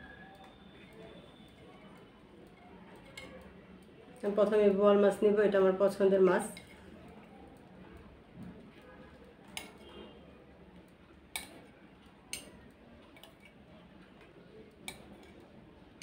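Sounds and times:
spoon clinking on ceramic plates: 11.3 - 11.6.

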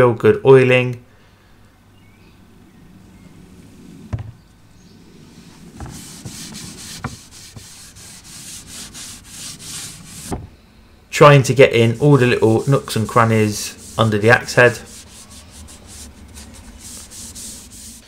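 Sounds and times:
cloth rubbing wooden handle: 5.2 - 10.4, 11.5 - 18.0.

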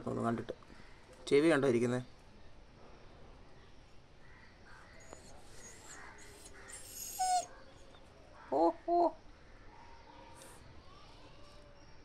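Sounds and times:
dog whining: 5.0 - 7.5.

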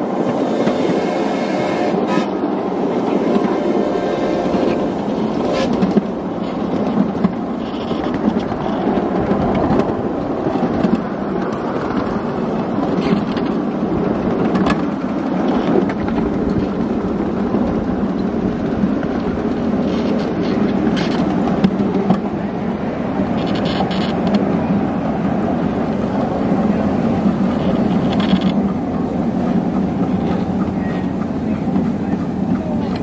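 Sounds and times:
train wheels rumbling on track: 0.0 - 33.0.

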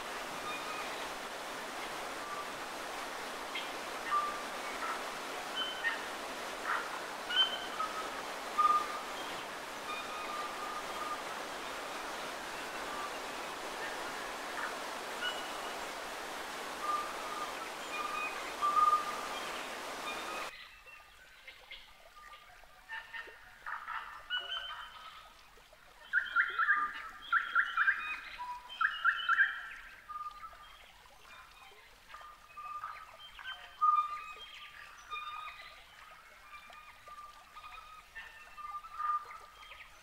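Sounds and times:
waterfall rushing: 0.0 - 20.5
bird calls: 0.0 - 20.8, 26.0 - 40.0.

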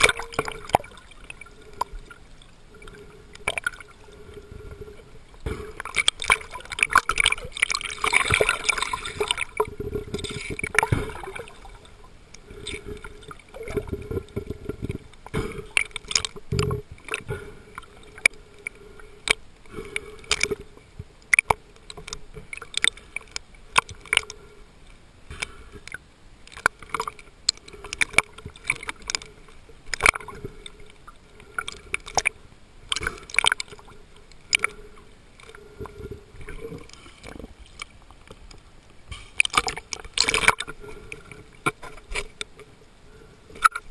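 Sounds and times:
water rushing and bubbling underwater: 0.0 - 43.9
sharp clicks and crackles: 5.5 - 11.4, 12.3 - 24.4, 25.3 - 34.8, 35.4 - 42.7.

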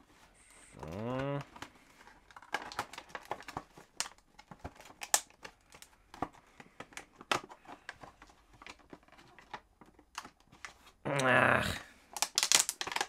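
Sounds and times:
plastic packaging crinkling: 2.0 - 6.0, 12.1 - 13.0.

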